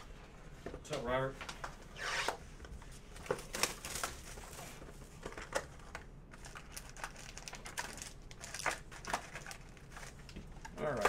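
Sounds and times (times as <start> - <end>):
card pack wrapper crinkling: 5.2 - 11.0.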